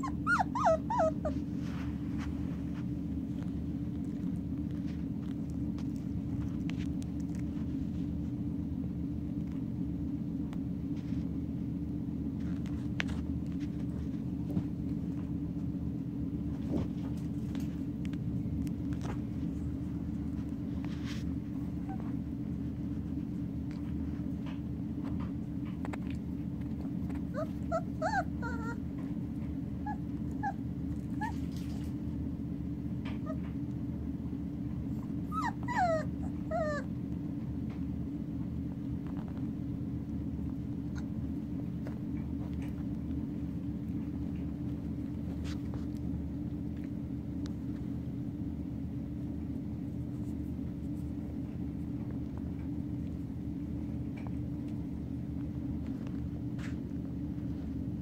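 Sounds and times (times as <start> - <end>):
puppies whimpering and yipping: 0.0 - 1.7, 27.2 - 28.9, 29.8 - 31.9, 35.0 - 36.9
low background hum: 0.0 - 58.0
faint clicks and scuffs: 1.3 - 8.3, 12.4 - 15.1.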